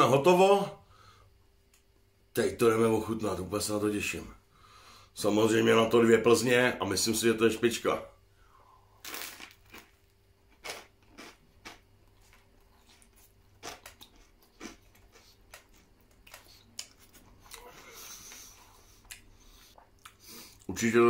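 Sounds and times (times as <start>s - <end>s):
crunchy chewing: 9.0s - 20.7s.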